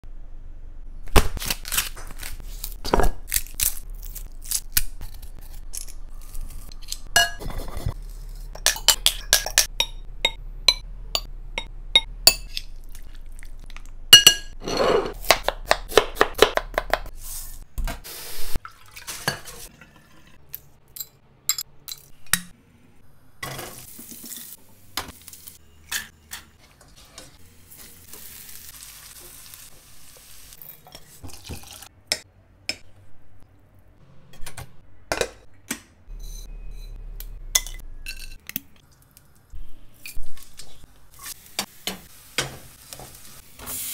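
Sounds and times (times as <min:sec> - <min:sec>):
utensils clinking on cookware: 0:06.8 - 0:11.3, 0:14.2 - 0:15.2.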